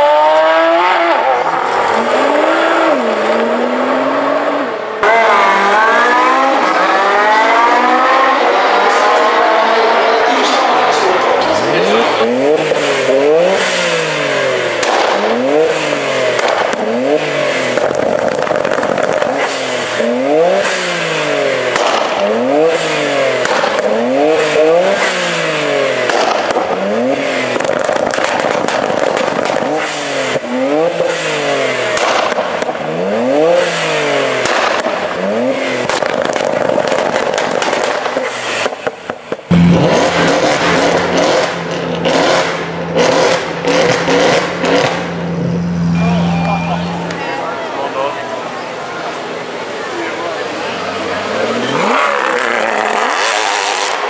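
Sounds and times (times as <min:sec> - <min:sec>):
car engine revving: 0:00.0 - 0:54.0.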